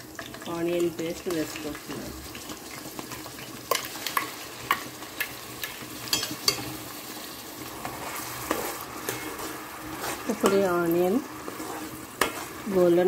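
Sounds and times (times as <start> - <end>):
onion paste sizzling in oil: 0.0 - 13.0
spoon scraping metal pan: 7.7 - 13.0.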